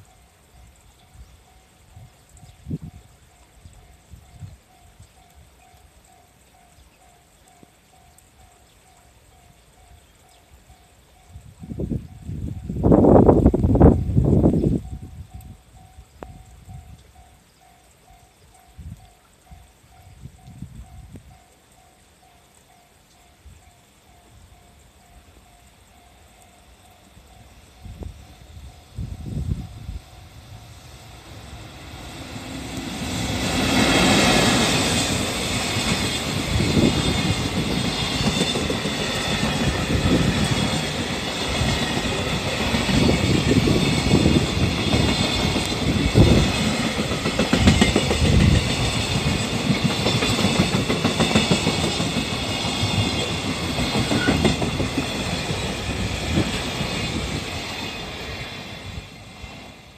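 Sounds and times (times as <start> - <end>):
electric locomotive passing: 0.0 - 59.9
train wheels clattering on rails: 31.1 - 59.9.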